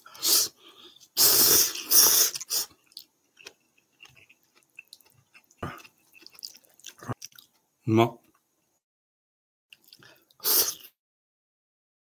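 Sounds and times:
person slurping noodles: 0.0s - 2.8s, 10.4s - 11.0s
quiet chewing: 0.6s - 8.4s, 9.7s - 10.9s.

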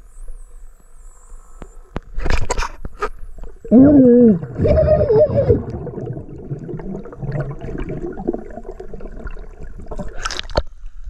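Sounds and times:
underwater bubbling: 3.2s - 11.0s
muffled cry underwater: 3.6s - 6.3s.

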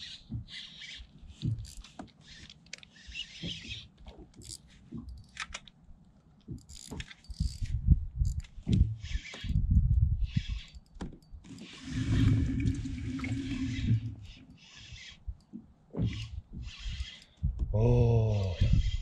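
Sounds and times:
spinning reel whirring: 0.0s - 4.6s, 11.5s - 15.2s, 16.0s - 17.4s.

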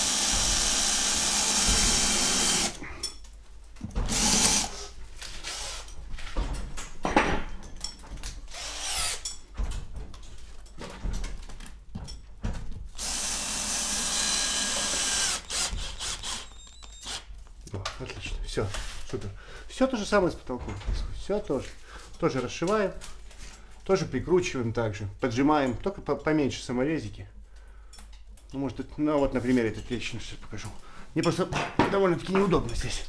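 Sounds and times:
cordless drill running: 0.0s - 2.8s, 4.1s - 5.9s, 8.5s - 9.2s, 13.0s - 17.3s.

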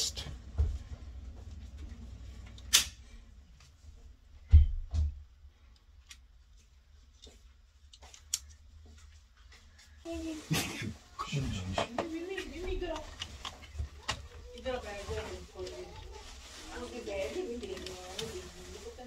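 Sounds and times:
breaker switches clicking: 2.6s - 3.0s.

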